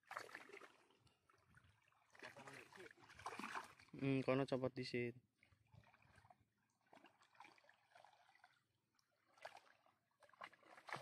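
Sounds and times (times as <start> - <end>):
water splash: 0.0 - 1.0, 2.0 - 4.2, 9.3 - 11.0
water sloshing and trickling: 0.0 - 11.0.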